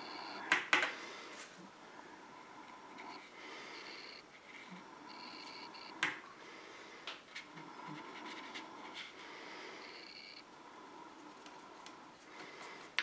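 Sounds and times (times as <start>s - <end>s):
paintbrush scratching on palette: 7.4s - 9.3s.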